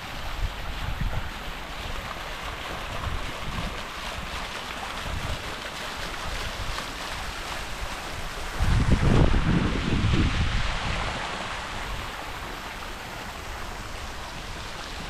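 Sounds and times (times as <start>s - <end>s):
wind buffeting microphone: 0.1s - 12.3s.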